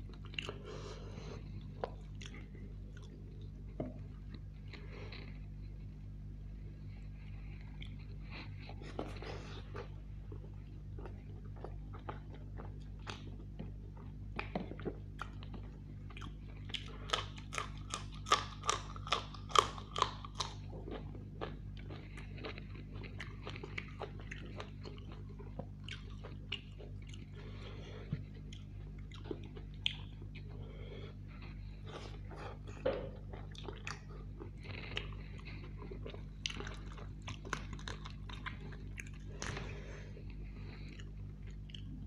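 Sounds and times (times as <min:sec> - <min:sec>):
chewing and crunching: 0:00.0 - 0:42.0.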